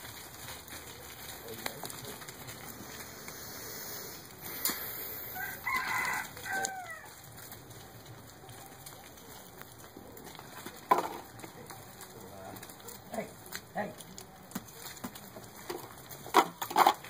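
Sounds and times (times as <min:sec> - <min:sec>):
rooster crowing: 0:05.2 - 0:07.3.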